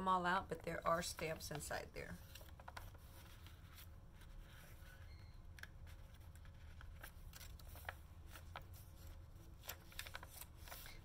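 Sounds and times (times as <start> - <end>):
paper pages rustling: 1.0 - 11.0
stiff pages clicking: 5.6 - 11.0.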